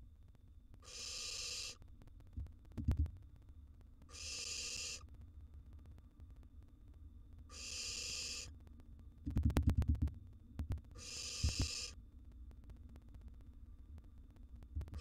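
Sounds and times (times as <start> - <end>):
owl nestlings hissing calls: 0.8 - 1.8, 4.1 - 5.0, 7.5 - 8.5, 11.0 - 12.0.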